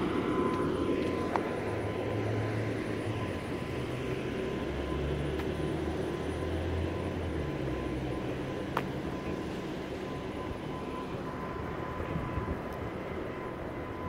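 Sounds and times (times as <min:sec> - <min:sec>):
outdoor traffic noise: 0:00.0 - 0:14.0
vehicle engine humming: 0:00.0 - 0:14.0.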